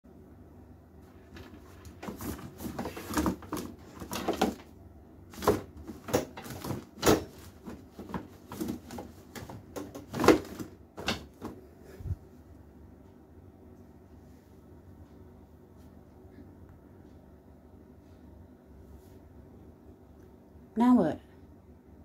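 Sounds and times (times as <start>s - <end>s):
bottles clattering on wooden shelf: 2.0s - 4.7s, 5.4s - 11.6s.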